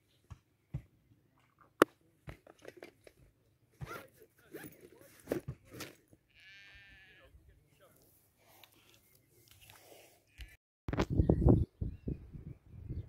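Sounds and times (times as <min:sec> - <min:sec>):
backpack rustling and crinkling: 0:03.8 - 0:06.0.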